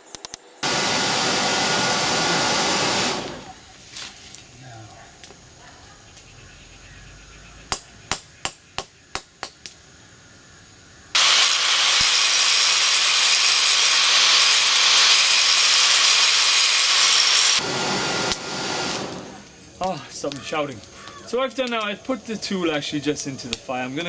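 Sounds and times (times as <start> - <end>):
angle grinder grinding steel: 0.6 - 3.6, 11.2 - 19.5.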